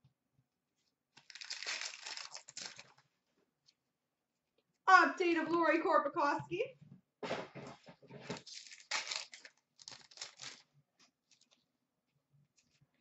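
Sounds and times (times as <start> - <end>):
wrapper tearing and crinkling: 1.2 - 3.0, 8.3 - 10.7.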